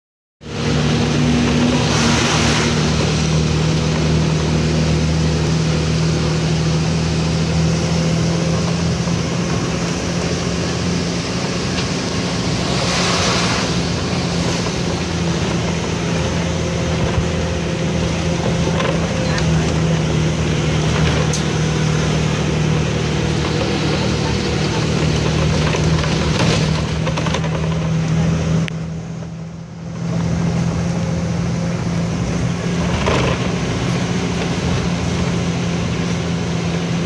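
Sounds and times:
vehicle engine droning: 0.4 - 37.0
loud rushing swell: 0.9 - 4.3, 10.8 - 15.4.

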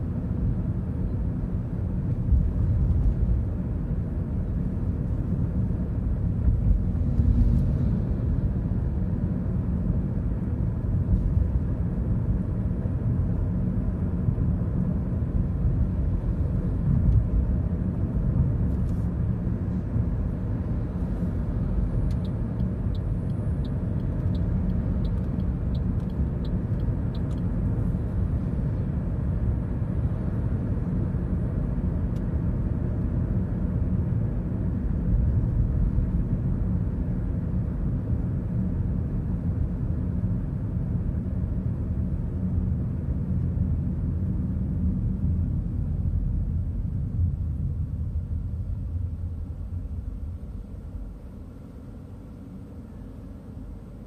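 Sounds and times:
car road and engine rumble: 0.0 - 54.0
light evenly spaced ticks: 22.0 - 27.5.

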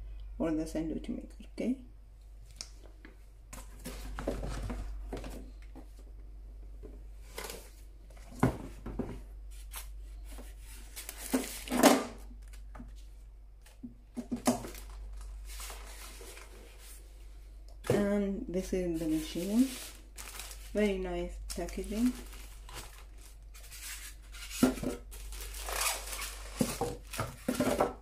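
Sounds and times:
plastic bag rustling: 10.4 - 12.6, 13.7 - 17.1, 18.7 - 28.0.

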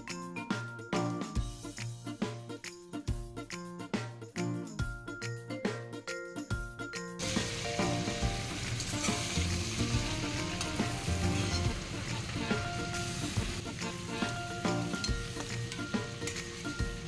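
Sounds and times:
prawns sizzling in oil: 7.2 - 17.0.

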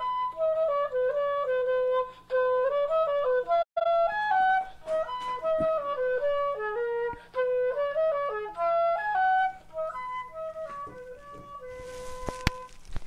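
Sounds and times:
slow solo melody: 0.0 - 13.0.

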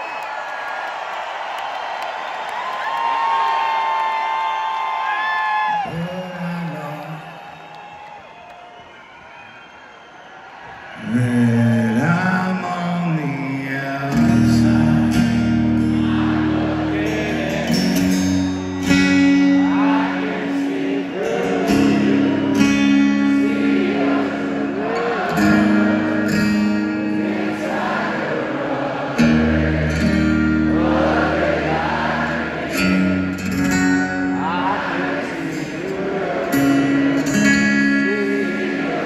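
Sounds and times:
concert crowd: 0.0 - 39.0
person singing lead vocals: 11.0 - 18.4, 19.2 - 33.1, 34.2 - 39.0
acoustic guitar: 11.2 - 28.2, 28.8 - 39.0
electric guitar chords: 14.2 - 28.1, 29.2 - 39.0.

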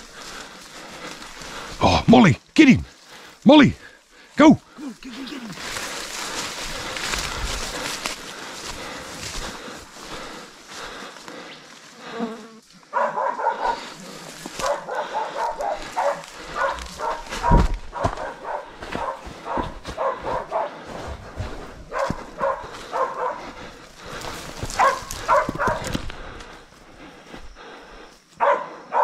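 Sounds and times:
dogs barking: 12.8 - 26.0, 28.4 - 29.0.

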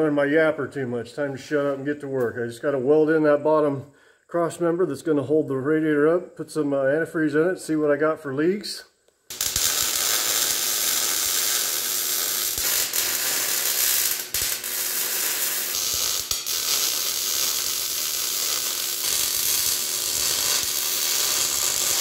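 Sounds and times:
welding arc crackling sizzle: 9.3 - 22.0.

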